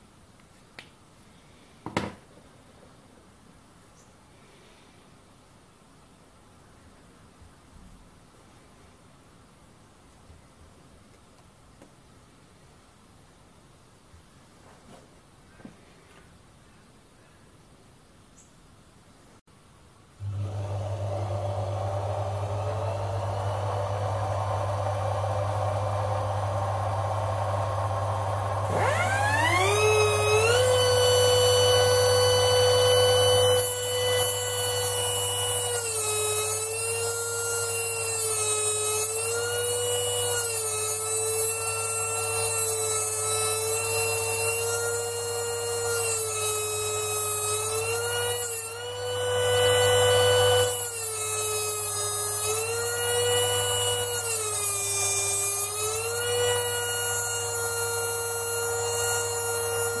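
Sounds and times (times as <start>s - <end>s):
air die grinder whining: 20.2s - 60.0s.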